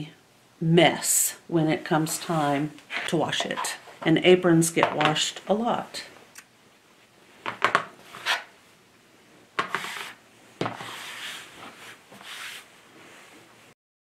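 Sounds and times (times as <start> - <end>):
fabric rustling on a cutting mat: 9.7 - 13.7.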